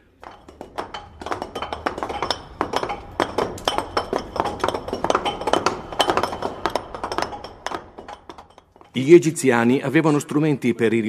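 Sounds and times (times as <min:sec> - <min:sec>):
chisels striking rock: 0:00.2 - 0:09.0.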